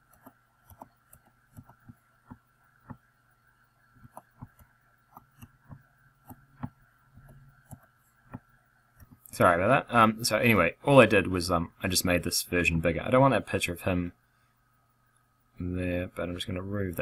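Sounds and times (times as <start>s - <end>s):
computer mouse clicking: 0.0s - 3.0s, 4.0s - 8.4s
faint steady hum: 0.0s - 17.0s.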